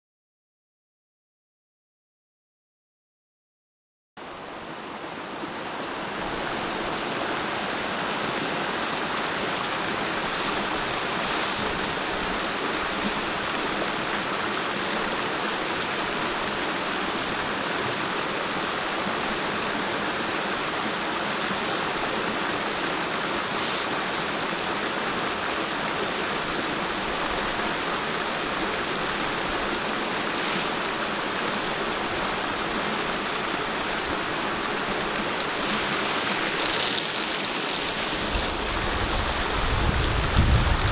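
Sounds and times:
water pouring from a pipe: 0:35.0 - 0:40.7
water splashing on ground: 0:35.3 - 0:40.5.

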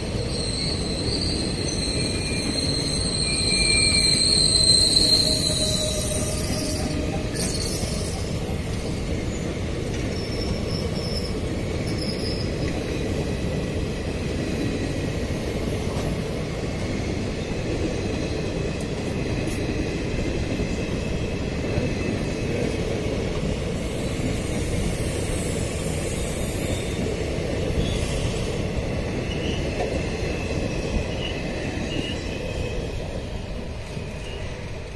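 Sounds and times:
train wheels rumbling on rails: 0:00.0 - 0:34.9
high-pitched wheel squeal: 0:00.2 - 0:08.3, 0:10.1 - 0:12.6.

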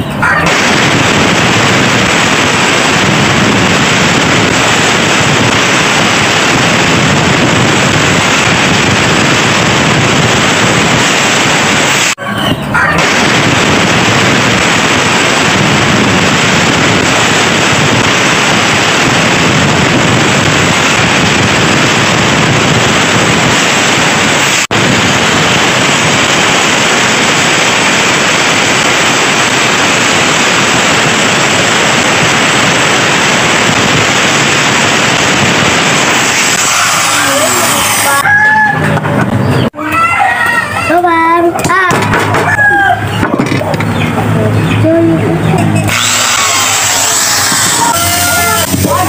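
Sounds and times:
angle grinder sanding wood: 0:45.9 - 0:49.0.

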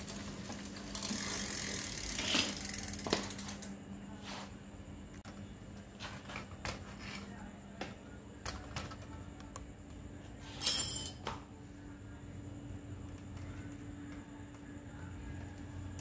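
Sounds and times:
hands handling bicycle drivetrain: 0:00.0 - 0:03.7
faint steady hum: 0:00.0 - 0:16.0.

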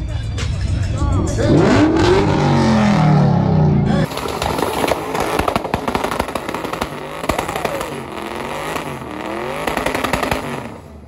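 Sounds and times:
car engine revving: 0:01.2 - 0:11.0
sharp pops and cracks: 0:04.1 - 0:10.8.

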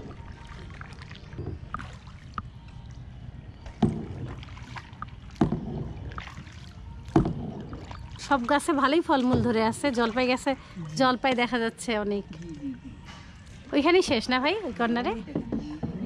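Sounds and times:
paddle strokes splashing water: 0:00.0 - 0:11.4.

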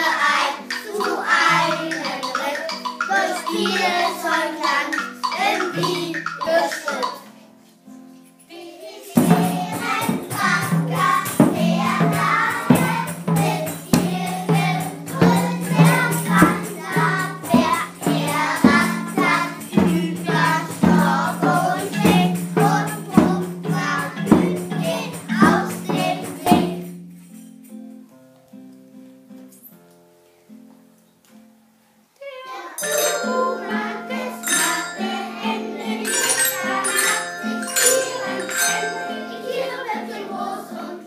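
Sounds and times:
children singing: 0:00.0 - 0:07.4, 0:08.5 - 0:26.9, 0:32.4 - 0:41.0
wooden xylophones: 0:00.2 - 0:07.3, 0:32.8 - 0:40.6
drum steady beat: 0:00.8 - 0:06.5, 0:09.2 - 0:26.8, 0:32.8 - 0:39.8.

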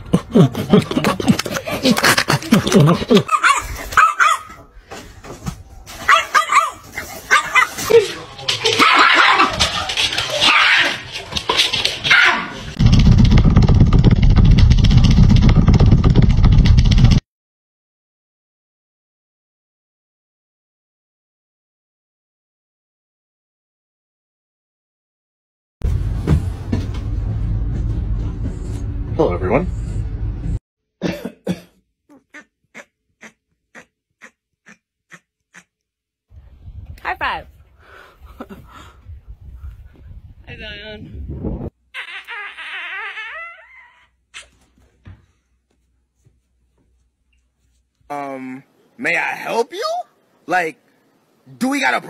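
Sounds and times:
small dog yipping: 0:03.3 - 0:04.5, 0:06.1 - 0:07.8
loud low rough rumble: 0:25.8 - 0:30.6
cough-like hacks: 0:31.0 - 0:35.7.

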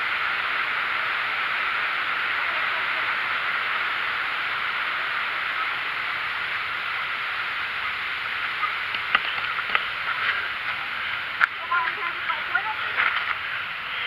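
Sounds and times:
mountain creek rushing: 0:00.0 - 0:14.0.

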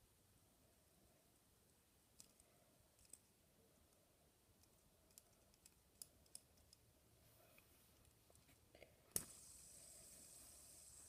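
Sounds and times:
fidget spinner clicks: 0:09.1 - 0:11.0.

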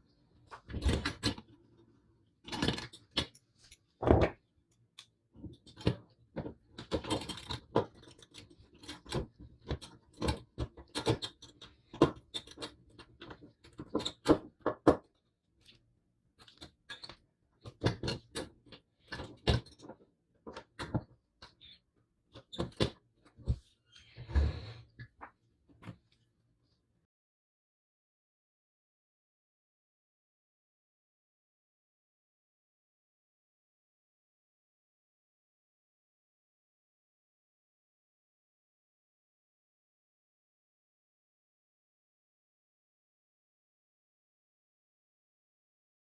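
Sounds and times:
small metal parts clicking and tapping: 0:04.7 - 0:15.1.

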